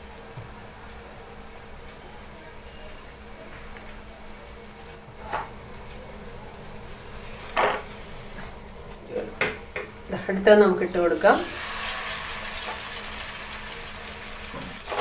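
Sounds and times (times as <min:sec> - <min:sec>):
oil sizzling in a pan: 0:06.7 - 0:08.8, 0:11.0 - 0:15.0.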